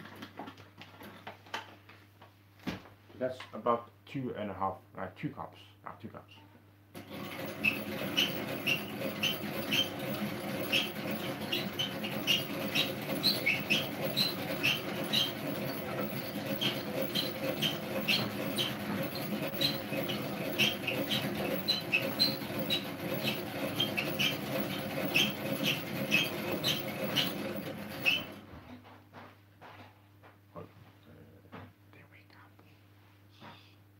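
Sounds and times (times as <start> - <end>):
egg beater gear whirring: 7.0 - 28.4
egg beater squeaking: 7.0 - 28.4.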